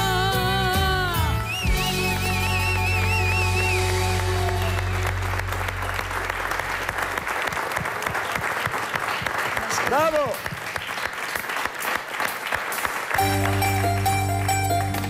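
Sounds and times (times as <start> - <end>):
live band holding a chord: 0.0 - 6.6, 13.2 - 15.0
audience applauding: 1.5 - 15.0.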